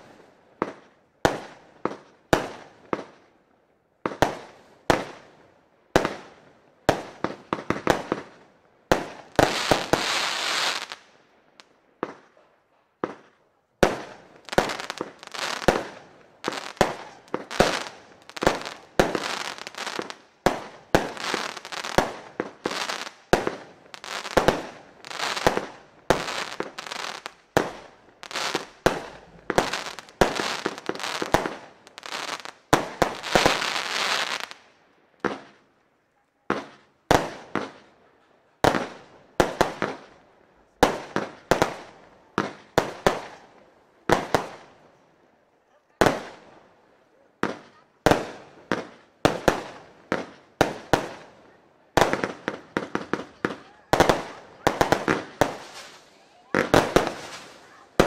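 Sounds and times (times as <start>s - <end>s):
firework battery firing sharp reports: 52.0s - 58.0s.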